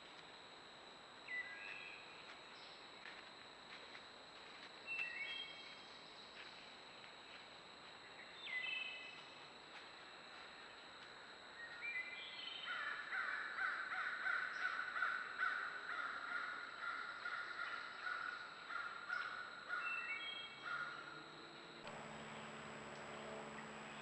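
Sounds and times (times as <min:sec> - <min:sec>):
crows cawing: 0:12.8 - 0:19.8, 0:20.6 - 0:21.1.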